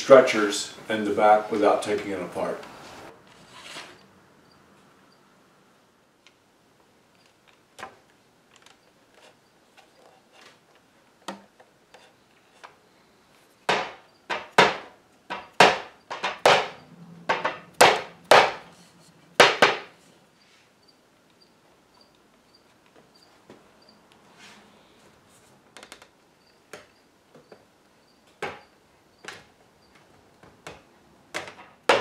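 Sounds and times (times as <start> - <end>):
sharp knocks on wood: 13.7 - 18.6, 19.4 - 19.9.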